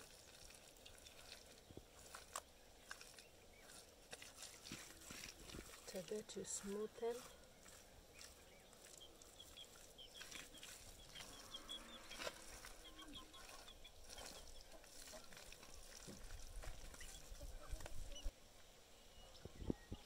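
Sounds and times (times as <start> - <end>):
hands rubbing wet plaster: 0.0 - 18.3
small bird chirping: 5.9 - 18.3.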